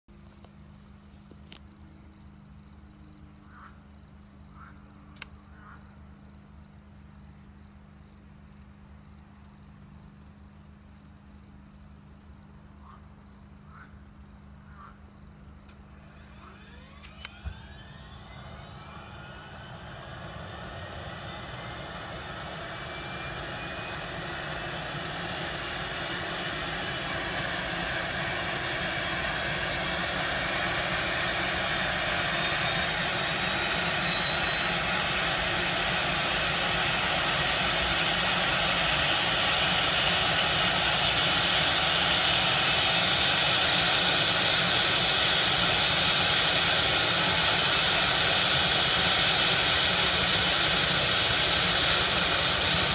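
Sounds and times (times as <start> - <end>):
crickets chirring: 0.1 - 16.4
helicopter turbine whine: 15.6 - 52.9
helicopter rotor turning: 15.7 - 52.9
low hum: 15.7 - 52.9.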